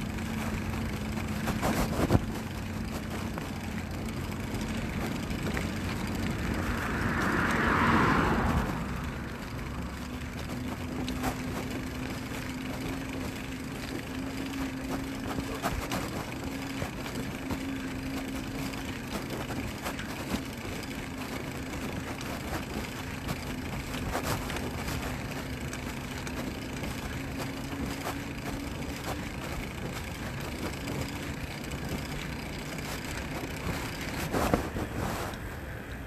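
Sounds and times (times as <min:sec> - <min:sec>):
road noise from vehicle riding: 0:00.0 - 0:36.0.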